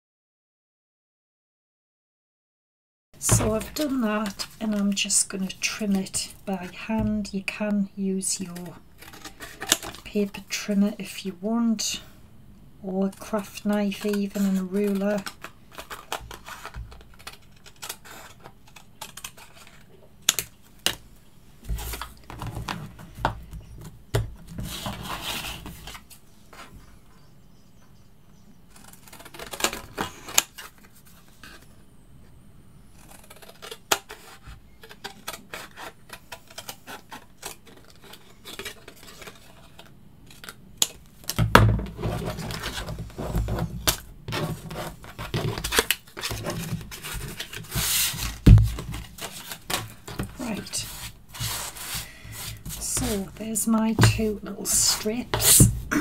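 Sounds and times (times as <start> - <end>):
paper rustling: 41.9 - 56.0.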